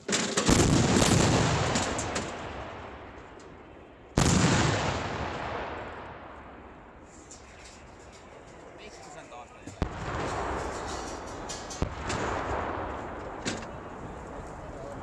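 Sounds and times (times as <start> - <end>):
artillery booms: 0.4 - 3.2, 4.2 - 6.7, 9.8 - 14.2.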